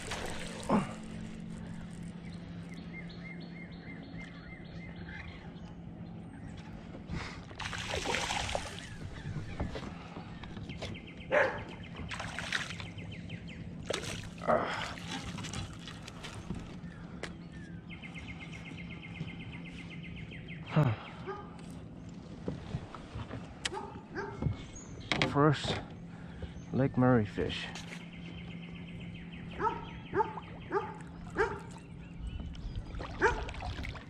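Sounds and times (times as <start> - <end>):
fish splashing in water: 0.0 - 1.7, 7.6 - 9.2, 12.1 - 13.0, 13.8 - 16.4, 32.9 - 34.0.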